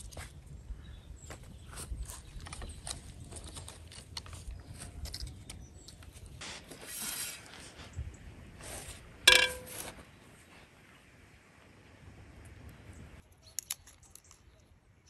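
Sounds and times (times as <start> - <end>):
firewood clicking and knocking: 9.3 - 9.8
ringing metal clank: 9.3 - 9.9.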